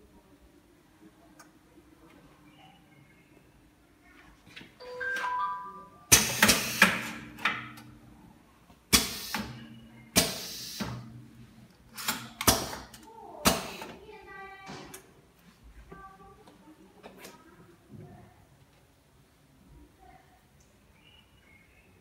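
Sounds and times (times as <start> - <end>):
air release bursts and clacks: 6.1 - 7.6, 8.9 - 11.1, 11.9 - 14.0.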